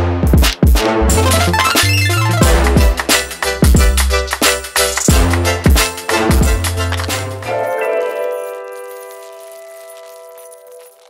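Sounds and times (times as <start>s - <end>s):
background music beat and bass: 0.0s - 7.8s
ringing final chord: 1.2s - 2.8s.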